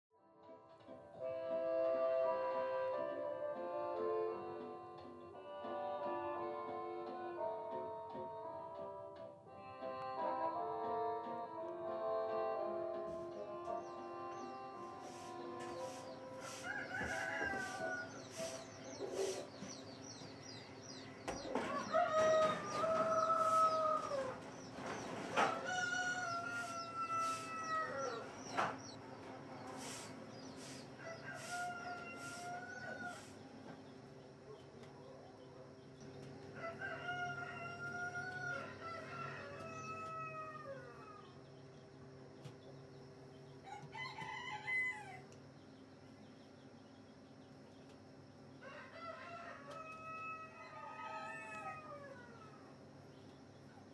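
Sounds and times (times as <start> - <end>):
roosters crowing: 13.2 - 33.8, 36.3 - 41.5, 43.6 - 45.4, 48.6 - 52.8
hens clucking: 13.8 - 33.8.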